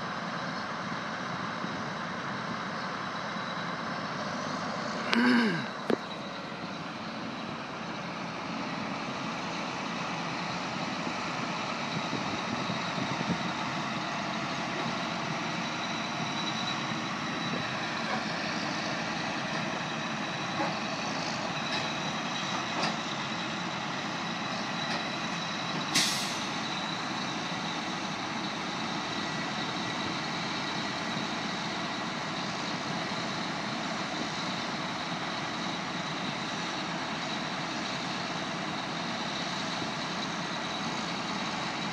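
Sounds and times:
diesel truck engine running: 0.0 - 41.9
sharp hiss of air: 26.0 - 26.6.

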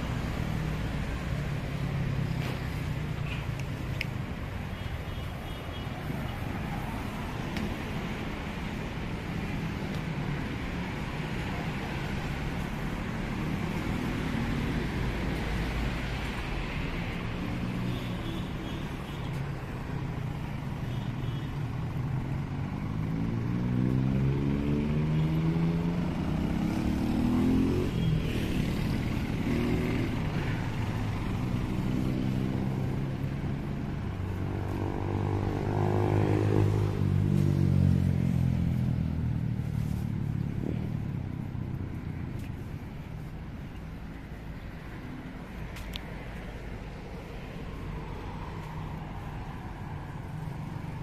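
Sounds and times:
cars and motorcycles passing: 0.0 - 51.0
road noise: 0.0 - 51.0.

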